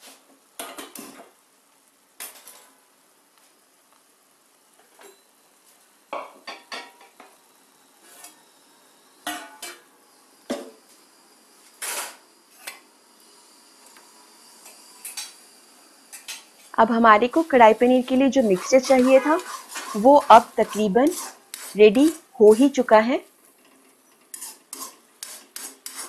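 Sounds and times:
faint sizzle: 0.0s - 26.0s
metal spatula scraping a pan: 8.0s - 8.5s, 17.4s - 26.0s.

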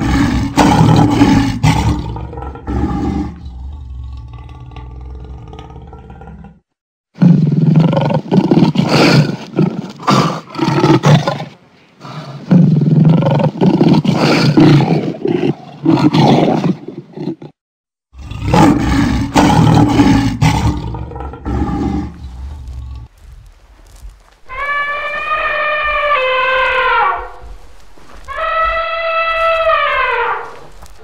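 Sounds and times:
lion roaring and grunting: 0.0s - 11.5s, 12.1s - 23.1s.

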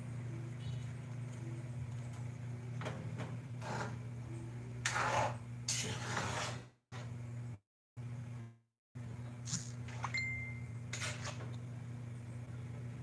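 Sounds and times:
steady low hum: 0.0s - 5.7s, 7.0s - 13.0s
metal ladle scraping a wok: 4.8s - 6.7s.

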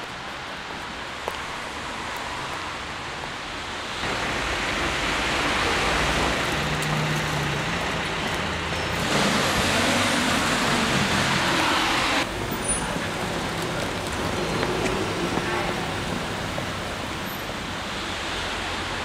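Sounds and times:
cars going by: 0.0s - 19.0s.

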